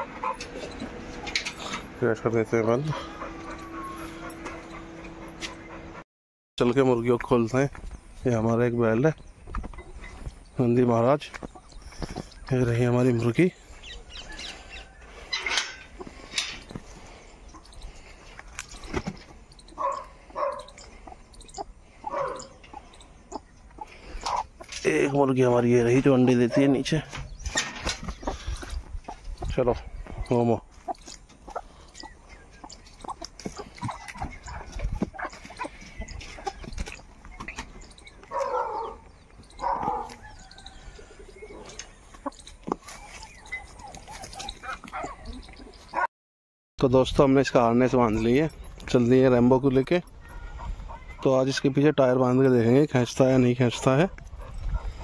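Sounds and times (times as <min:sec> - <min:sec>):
chickens clucking: 0:00.0 - 0:06.0, 0:08.4 - 0:46.1, 0:47.2 - 0:55.0
chicken squawking: 0:02.8 - 0:04.9, 0:19.7 - 0:25.1, 0:50.2 - 0:51.3.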